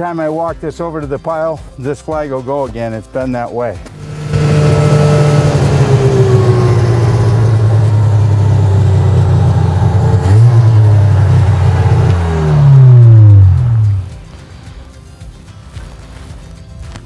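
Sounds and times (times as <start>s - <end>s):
vehicle engine running and revving: 3.9s - 14.4s.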